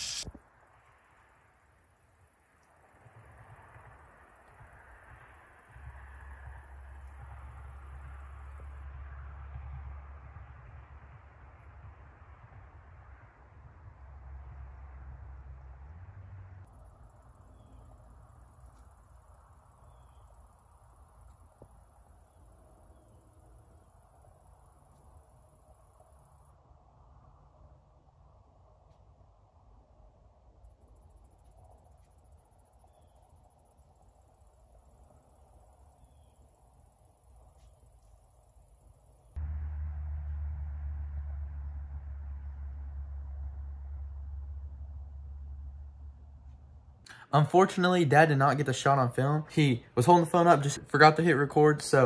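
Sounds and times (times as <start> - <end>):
faint low rumble: 0.0 - 47.6
high pulsing insect trill: 16.7 - 26.5, 30.8 - 39.4.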